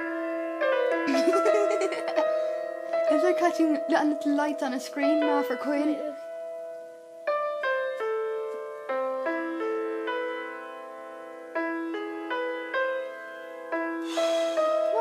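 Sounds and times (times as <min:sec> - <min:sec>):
slow piano melody: 0:00.0 - 0:15.0.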